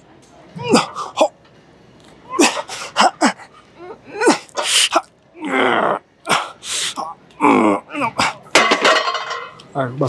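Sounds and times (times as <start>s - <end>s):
man groaning: 2.3s - 8.4s
man grunting under strain: 4.0s - 8.4s.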